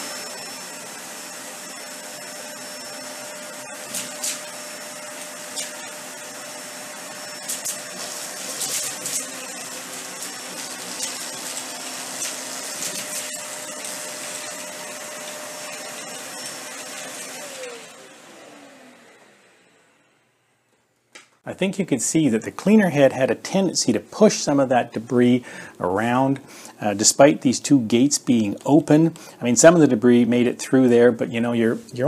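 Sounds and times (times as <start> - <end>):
upright vacuum running on carpet: 0.0 - 20.1
cereal clicking and rattling in vacuum: 7.4 - 16.3.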